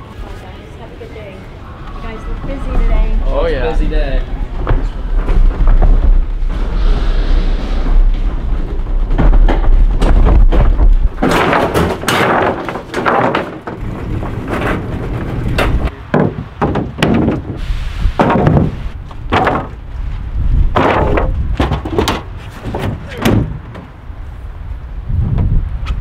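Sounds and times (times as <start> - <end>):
wooden boards knocking and clattering: 4.6 - 6.6, 8.2 - 17.6, 18.2 - 19.9, 20.7 - 23.9.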